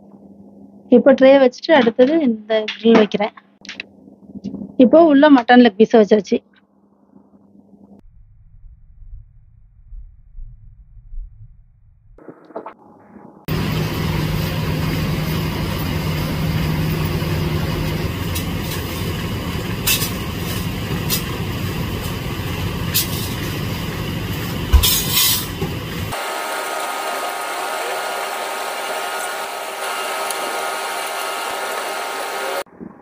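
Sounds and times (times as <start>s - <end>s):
low hum: 0.0s - 1.2s, 6.4s - 26.2s
machine hum with high whine: 0.0s - 5.3s, 6.3s - 10.5s, 12.0s - 33.0s
oven fire burning: 12.2s - 32.7s.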